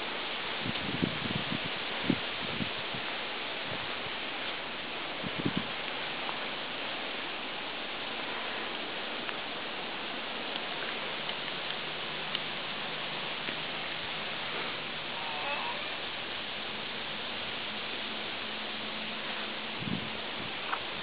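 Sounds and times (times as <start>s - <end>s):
steady outdoor hiss: 0.0s - 21.0s
faint ticks: 8.6s - 9.4s, 10.4s - 13.7s.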